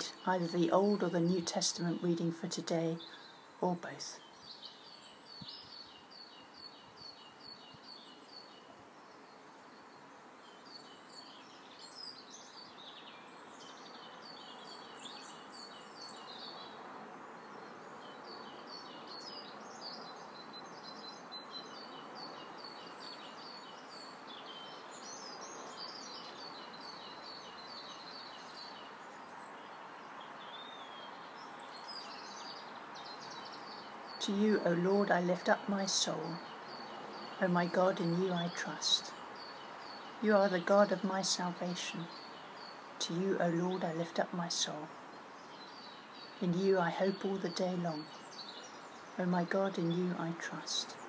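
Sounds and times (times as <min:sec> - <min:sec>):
birds singing: 0:00.0 - 0:51.0
steady background hiss: 0:00.0 - 0:51.0.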